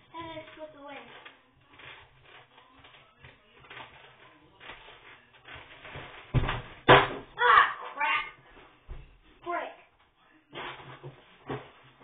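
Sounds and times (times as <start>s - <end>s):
heavy thumps: 3.2s - 7.4s.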